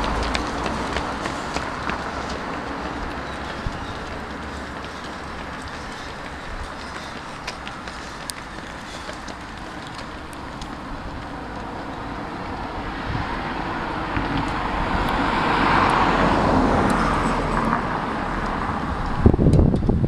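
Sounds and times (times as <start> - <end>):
car passing: 0.0 - 19.4
wind buffeting on microphone: 12.4 - 17.2, 18.4 - 20.0.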